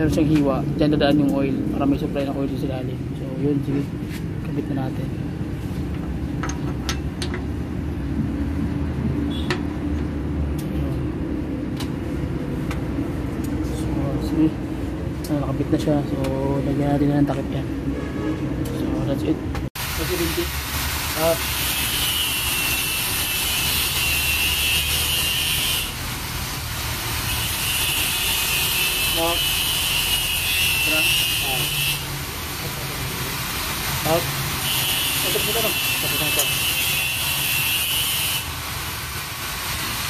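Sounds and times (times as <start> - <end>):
high hiss: 19.8 - 29.4.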